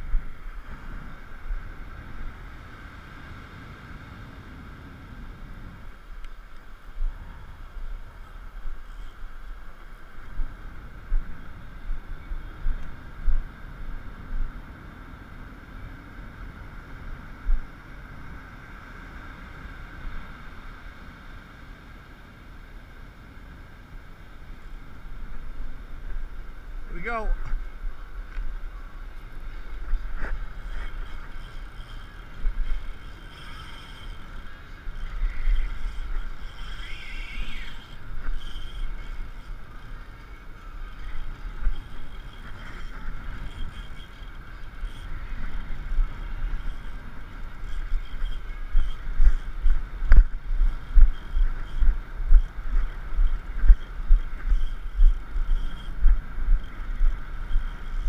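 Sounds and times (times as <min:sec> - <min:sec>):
wind buffeting microphone: 0:00.0 - 0:58.0
low pulsing rumble: 0:24.8 - 0:58.0.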